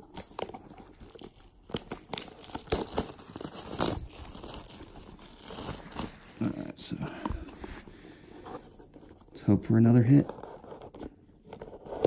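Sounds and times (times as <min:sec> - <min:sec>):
plastic wrapping crinkling and tearing: 0:00.0 - 0:07.7.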